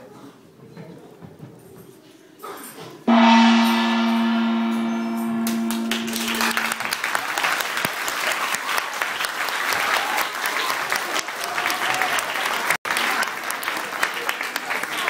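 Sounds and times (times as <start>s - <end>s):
dance music final note: 3.1s - 6.9s
audience applause: 7.0s - 15.0s.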